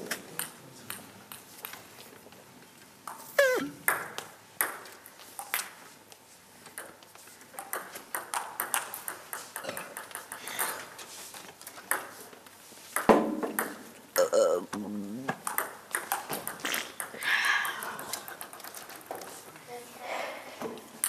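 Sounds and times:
table tennis balls clicking: 6.7 - 11.0, 13.0 - 19.3.

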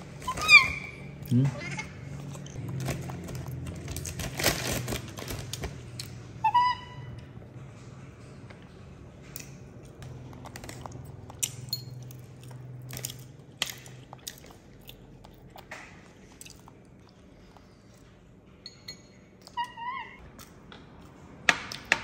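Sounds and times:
chewing and biting: 1.1 - 6.2, 9.2 - 18.2.

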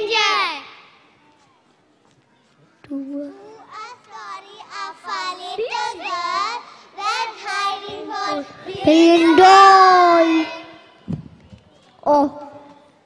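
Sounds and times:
children singing into a microphone: 3.4 - 10.8.

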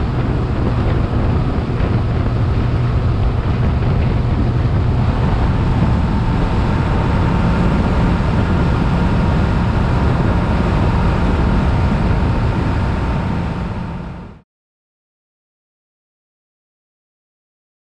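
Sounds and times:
motorcycle engine and wind rumble: 0.0 - 14.4.

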